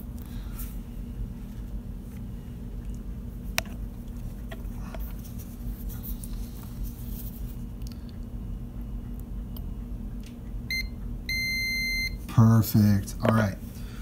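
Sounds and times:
multimeter continuity beeps: 0:10.7 - 0:12.2.

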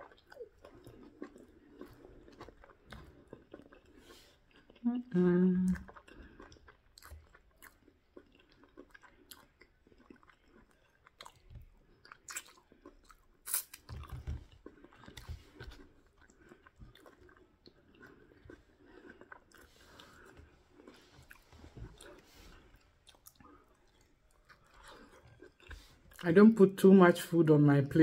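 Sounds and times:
faint chewing: 0:00.0 - 0:26.3
wet mouth clicks: 0:13.5 - 0:13.9.

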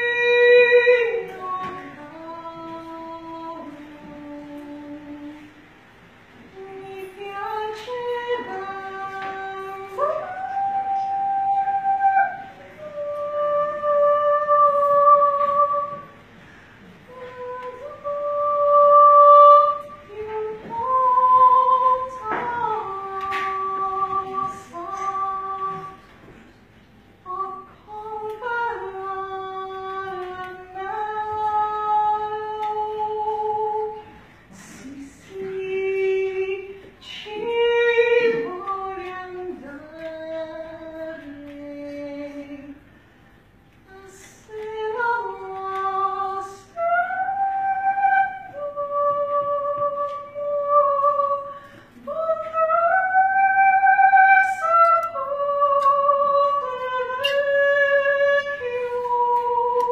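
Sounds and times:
woman singing soprano: 0:00.0 - 0:05.7, 0:06.4 - 0:26.5, 0:27.2 - 0:43.0, 0:43.8 - 0:59.9.

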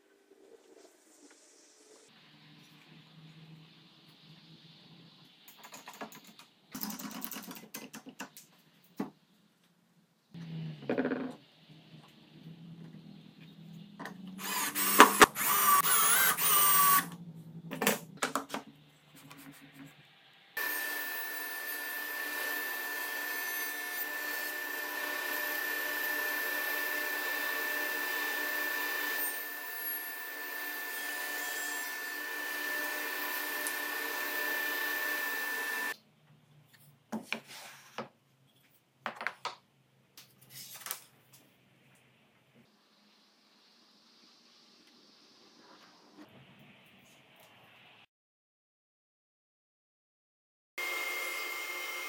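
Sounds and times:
cordless drill driving screws: 0:14.4 - 0:17.1, 0:32.1 - 0:36.0
table saw whining: 0:14.4 - 0:17.2, 0:20.6 - 0:36.0, 0:50.8 - 0:52.0.

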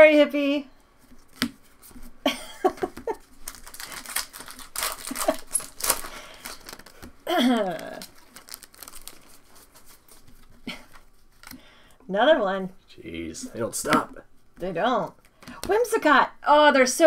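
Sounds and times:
foil wrappers crinkling and tearing: 0:03.1 - 0:11.6.

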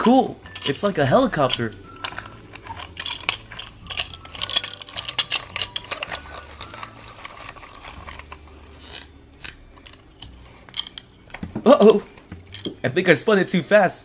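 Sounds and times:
plastic toy clicking rapidly: 0:00.5 - 0:08.2.

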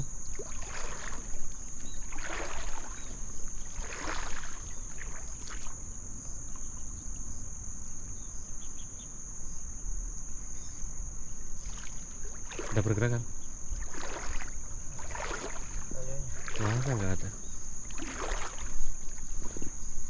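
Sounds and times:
rustling or splashing bursts: 0:00.0 - 0:05.8, 0:11.6 - 0:19.9
insects droning: 0:00.0 - 0:20.0.

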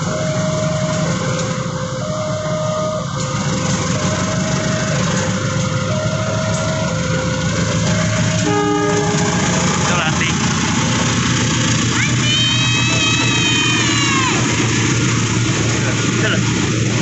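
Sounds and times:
locomotive engine rumble: 0:00.0 - 0:17.0
level crossing two-note alarm: 0:08.2 - 0:10.1.

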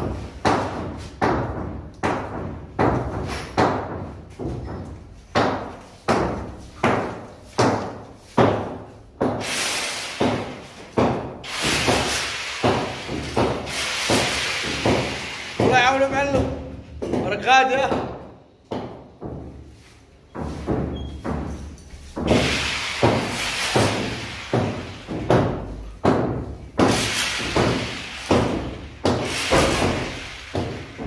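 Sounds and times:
tool striking concrete floor: 0:00.0 - 0:31.0.

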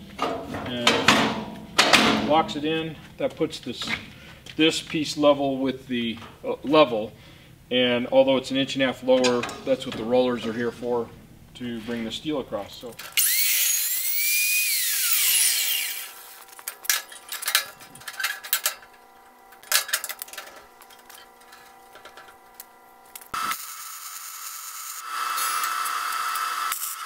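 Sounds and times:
saw motor whining: 0:13.1 - 0:16.6, 0:23.3 - 0:27.0
welding arc hissing: 0:13.2 - 0:16.7, 0:21.3 - 0:27.0
metal clinks and knocks: 0:16.5 - 0:19.0.

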